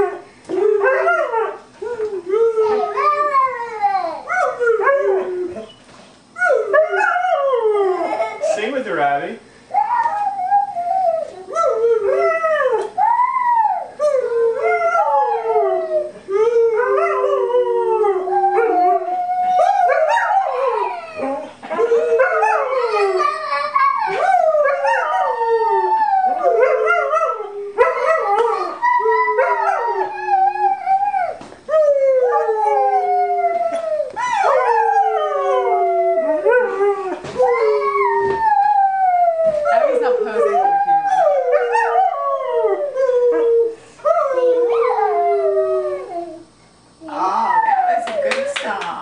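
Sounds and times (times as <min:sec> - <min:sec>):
dog howling: 0:09.7 - 0:46.5.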